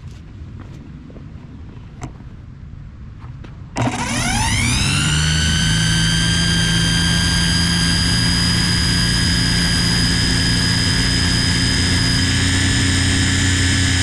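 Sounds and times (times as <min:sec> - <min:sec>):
string trimmer whining: 0:03.8 - 0:14.0.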